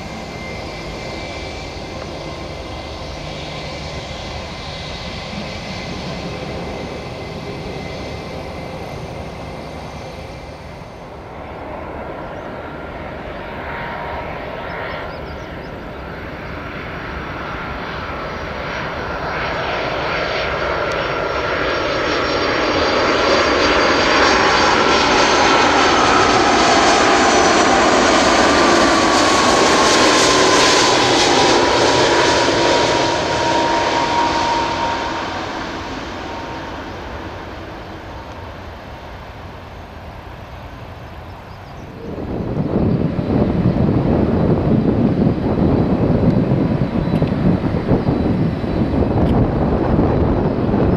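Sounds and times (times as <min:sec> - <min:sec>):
jet airliner engine noise: 0:00.0 - 0:50.9
jet whine sliding down: 0:20.9 - 0:39.0, 0:41.6 - 0:50.9.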